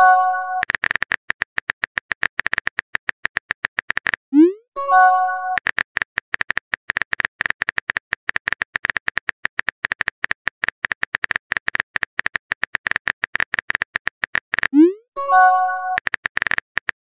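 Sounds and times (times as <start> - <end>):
message chime: 0.0 - 0.6, 4.8 - 5.6, 14.9 - 16.0.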